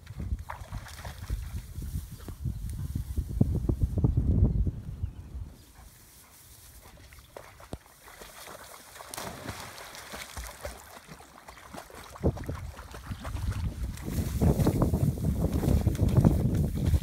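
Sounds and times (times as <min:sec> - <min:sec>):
dogs splashing through water: 0:00.0 - 0:01.8, 0:06.4 - 0:17.0.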